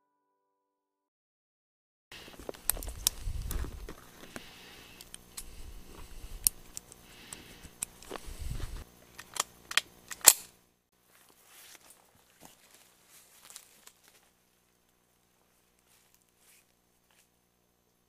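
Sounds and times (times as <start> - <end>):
handling rumble: 2.2 - 9.0
cartridges clicking into magazine: 9.1 - 10.6.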